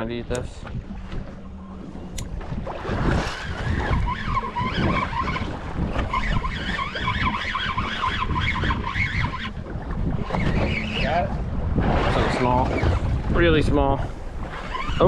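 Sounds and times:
wind buffeting microphone: 0:00.0 - 0:15.0
fishing reel whirring: 0:01.3 - 0:11.4, 0:14.4 - 0:15.0.

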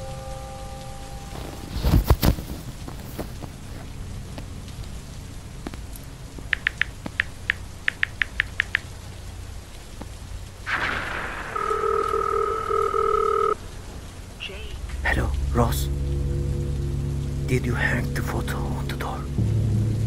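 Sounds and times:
telephone ringing tone: 0:11.4 - 0:13.6
phone keypad beeps: 0:11.5 - 0:13.6
rush of noise: 0:13.6 - 0:20.0.

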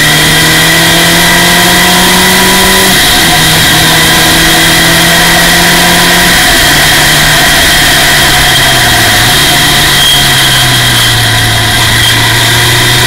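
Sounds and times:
race car engine revving: 0:00.0 - 0:13.0.

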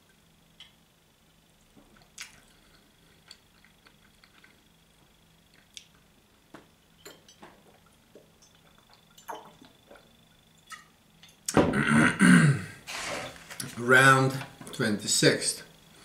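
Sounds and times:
person swallowing: 0:11.5 - 0:12.7.

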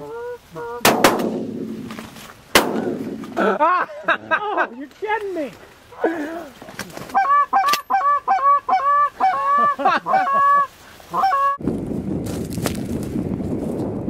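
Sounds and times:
goose honking: 0:00.0 - 0:01.0, 0:07.1 - 0:11.6
wind buffeting microphone: 0:11.6 - 0:14.0.

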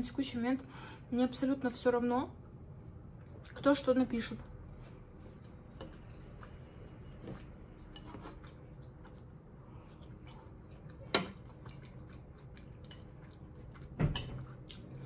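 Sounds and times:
fork clicking on bowl and plate: 0:05.8 - 0:06.2, 0:12.8 - 0:14.5.

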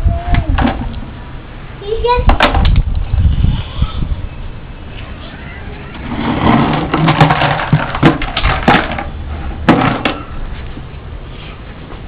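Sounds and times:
plastic bucket knocking: 0:06.4 - 0:09.1.

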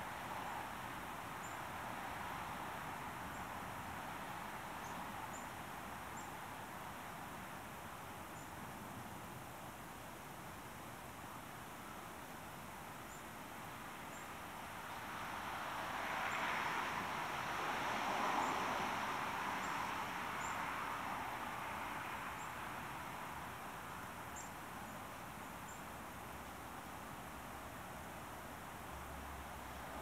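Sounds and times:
vehicle passing on road: 0:14.8 - 0:24.0.

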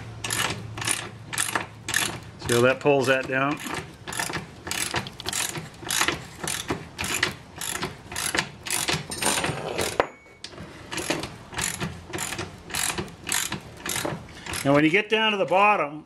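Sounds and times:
ratchet wrench clicking: 0:00.2 - 0:02.2, 0:03.0 - 0:09.1, 0:11.0 - 0:14.8.

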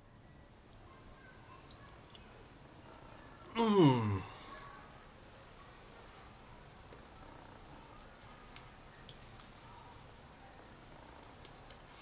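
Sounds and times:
faint high-pitched hiss: 0:00.0 - 0:12.0
faint ticks: 0:01.6 - 0:02.3.

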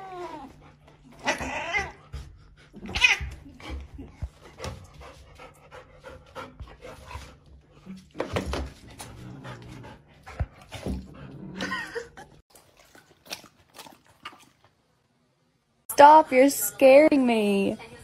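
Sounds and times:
dog panting and whining: 0:00.0 - 0:08.0, 0:08.8 - 0:11.6.

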